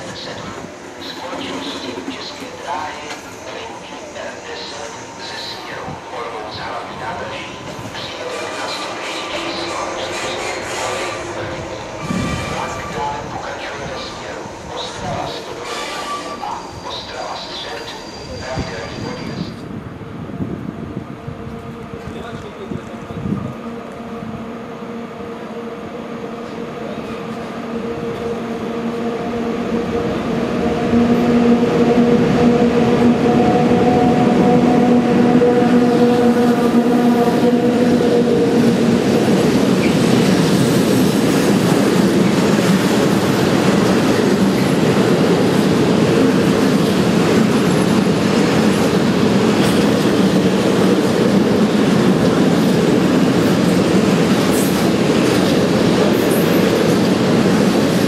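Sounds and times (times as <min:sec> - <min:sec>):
electric locomotive whine: 0:00.0 - 0:58.0
train wheels clattering on rails: 0:38.4 - 0:58.0.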